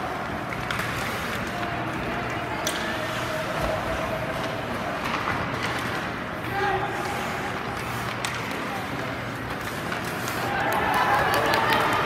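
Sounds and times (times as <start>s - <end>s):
skates scraping on ice: 0.0s - 12.0s.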